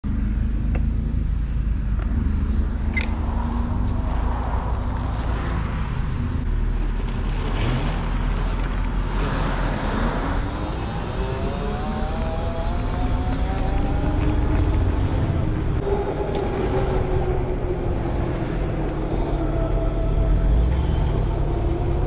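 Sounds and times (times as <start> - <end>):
passing traffic: 0.0 - 22.0
rising whine: 10.3 - 22.0.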